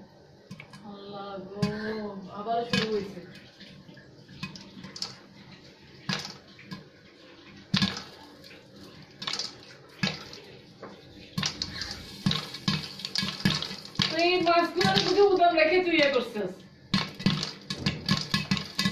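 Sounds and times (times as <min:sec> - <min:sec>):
hot oil sizzling: 0:01.0 - 0:18.9
popcorn popping in a pot: 0:01.5 - 0:03.4, 0:04.4 - 0:05.3, 0:06.0 - 0:07.0, 0:07.6 - 0:10.4, 0:11.3 - 0:18.9.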